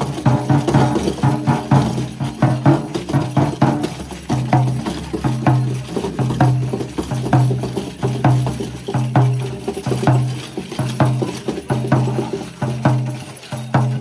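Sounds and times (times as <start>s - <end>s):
brass bells jingling: 0.0s - 14.0s
frame drum beating: 0.0s - 14.0s.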